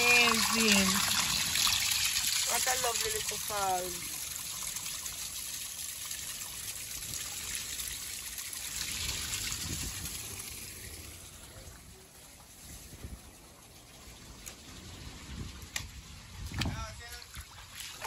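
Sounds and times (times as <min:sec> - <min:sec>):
small waterfall rushing: 0:00.0 - 0:11.6.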